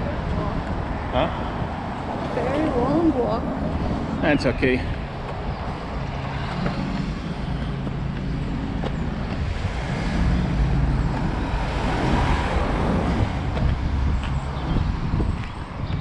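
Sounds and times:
van and car engines passing: 0:00.0 - 0:16.0.

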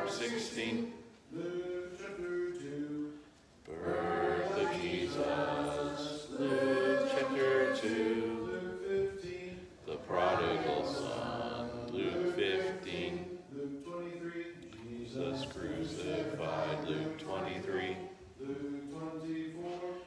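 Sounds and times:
children reciting in unison: 0:00.0 - 0:01.0, 0:03.7 - 0:13.7, 0:14.7 - 0:18.9.

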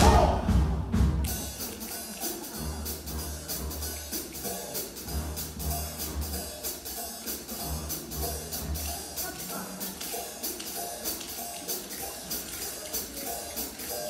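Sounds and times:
high percussion beat: 0:00.0 - 0:14.0
low bass notes: 0:02.6 - 0:04.0, 0:05.0 - 0:06.5.

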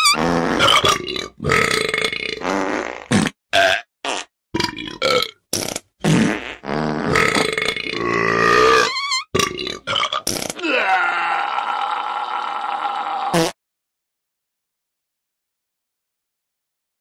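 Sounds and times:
burp-like ringtone noises: 0:03.6 - 0:03.9.

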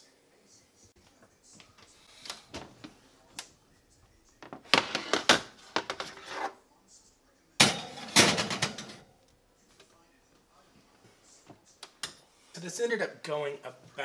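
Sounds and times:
oven door clanking open: 0:07.6 - 0:09.0
baking dish clattering on rack: 0:07.6 - 0:09.1.

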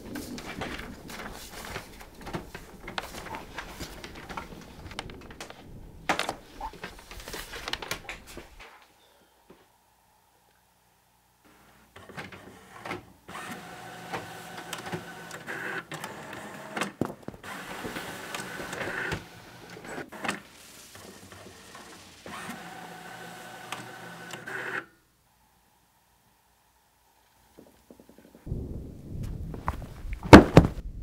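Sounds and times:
printer whirring and clicking: 0:00.0 - 0:08.6, 0:11.9 - 0:24.9
loud knocks: 0:28.5 - 0:30.9.

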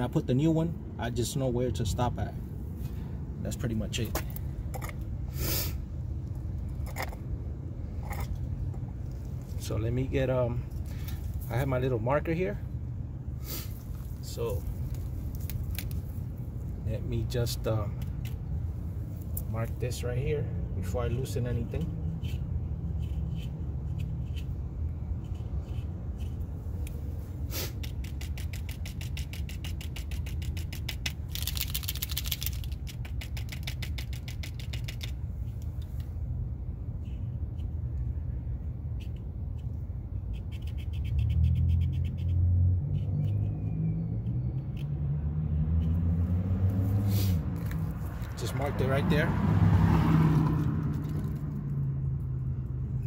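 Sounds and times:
marker scratching: 0:21.1 - 0:35.7, 0:38.8 - 0:43.7
vehicle engine revving: 0:42.3 - 0:52.4.

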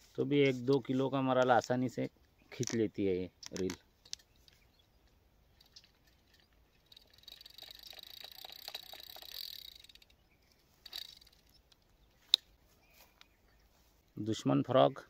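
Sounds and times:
fishing reel clicking: 0:05.5 - 0:10.2, 0:10.8 - 0:11.8.

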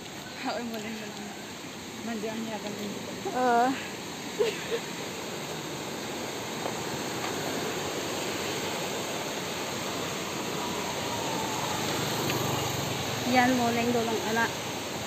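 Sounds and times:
steady rushing noise: 0:00.0 - 0:15.0
motor scooter engine: 0:09.9 - 0:15.0.

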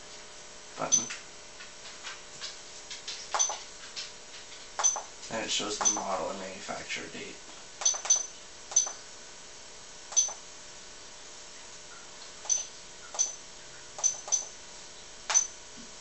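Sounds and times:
button beep-clicks: 0:00.9 - 0:01.2, 0:03.4 - 0:03.6, 0:07.8 - 0:09.0, 0:10.1 - 0:10.4, 0:12.5 - 0:13.4, 0:14.0 - 0:14.5.

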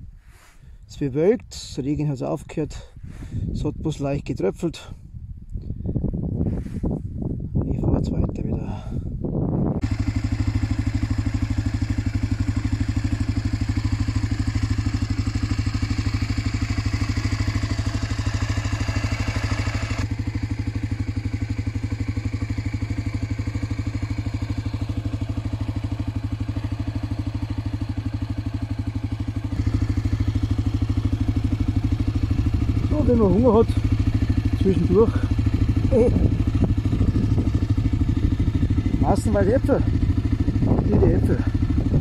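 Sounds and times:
motorcycle engine running: 0:09.6 - 0:42.0.

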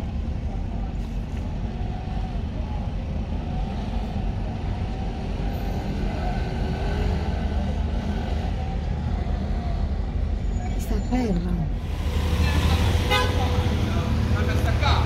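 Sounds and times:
low engine rumble: 0:11.5 - 0:15.0.

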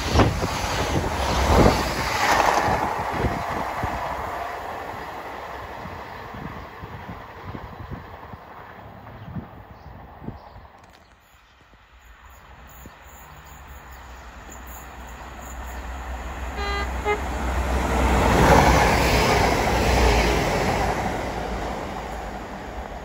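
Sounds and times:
train wheel noise: 0:00.0 - 0:11.0, 0:12.1 - 0:23.0
train horn toots: 0:16.5 - 0:17.5.

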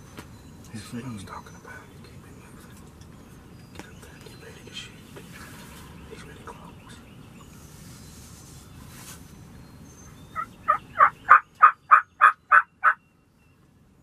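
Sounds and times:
turkey yelping: 0:10.3 - 0:13.0.

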